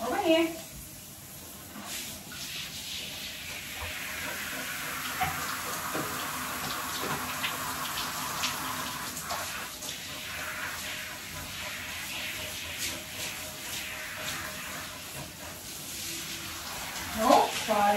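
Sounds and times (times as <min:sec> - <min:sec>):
shower head spraying water: 0:00.0 - 0:17.9
water splashes: 0:12.1 - 0:17.9.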